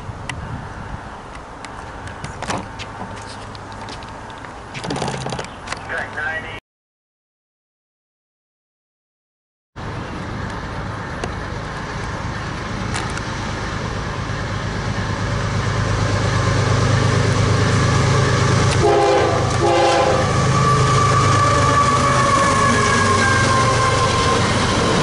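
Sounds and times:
diesel locomotive engine drone: 0.0 - 4.7, 9.8 - 25.0
train horn blasts: 18.7 - 24.4.

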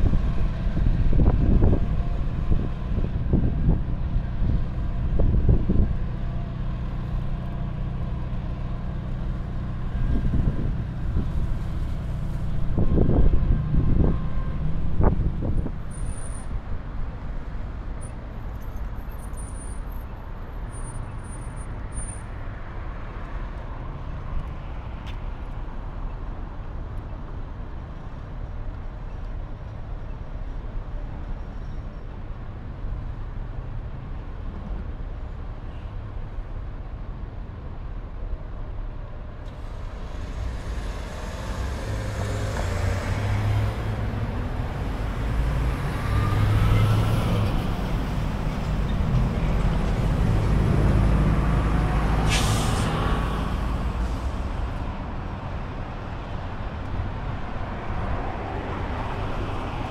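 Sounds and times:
wind buffeting microphone: 0.0 - 6.1, 9.9 - 15.9
bus approaching: 0.0 - 59.9
city street traffic: 0.0 - 59.9.

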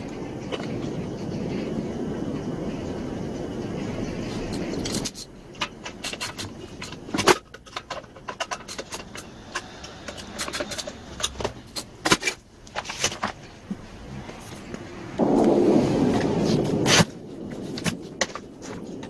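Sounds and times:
rushing noise: 0.0 - 7.2, 8.8 - 19.0
tools and parts clinking: 4.5 - 13.7.

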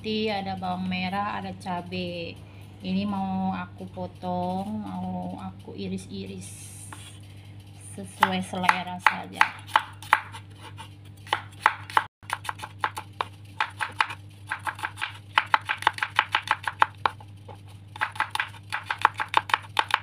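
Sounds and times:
knife chopping on cutting board: 8.2 - 20.0.

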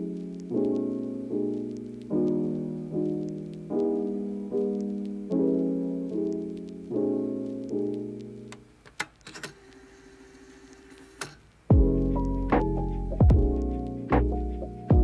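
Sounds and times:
soft piano music: 0.0 - 8.6, 11.7 - 15.0.

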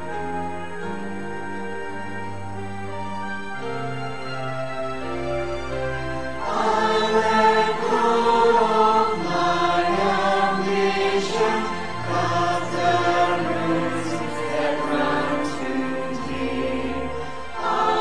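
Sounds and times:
strings flutes trumpet and piano: 0.0 - 18.0
mixed choir singing a hymn: 6.4 - 18.0.

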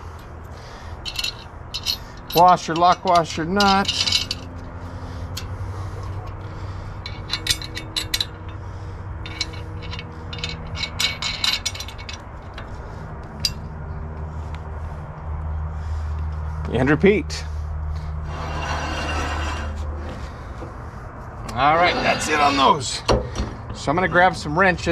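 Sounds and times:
metal washers and nuts clinking: 0.0 - 12.8, 13.4 - 13.6, 21.5 - 24.4.

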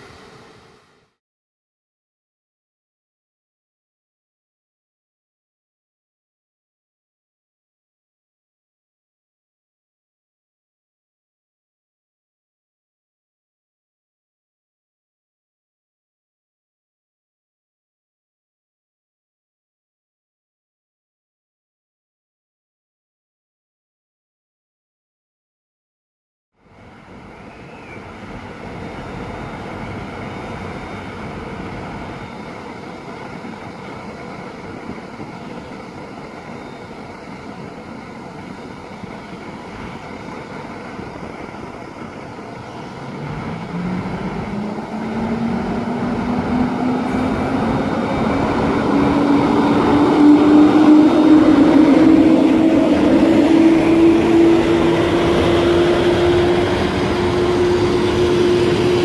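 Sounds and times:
electric locomotive humming: 26.6 - 59.0
train carriages rolling past: 26.6 - 59.0
locomotive whine rising in pitch: 39.0 - 59.0.

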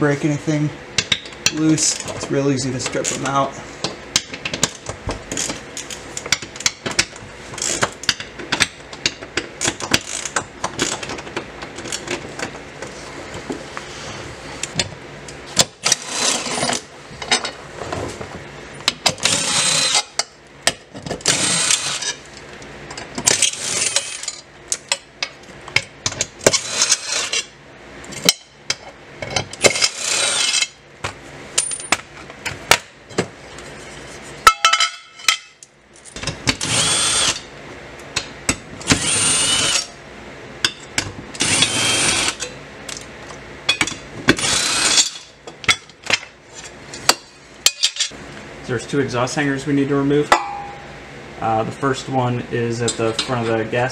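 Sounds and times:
cordless driver spinning bolts: 19.1 - 20.2, 21.2 - 22.2, 23.2 - 24.4, 29.6 - 30.6, 36.5 - 37.5, 38.8 - 39.9, 41.4 - 42.4, 44.3 - 45.2.

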